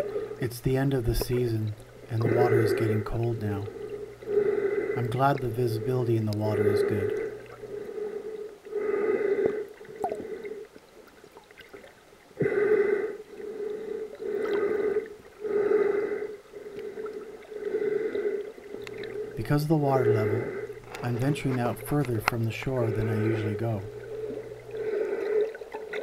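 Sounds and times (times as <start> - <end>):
breathing through a snorkel: 3.7 - 5.2, 6.6 - 10.7, 12.4 - 21.1, 22.9 - 25.7.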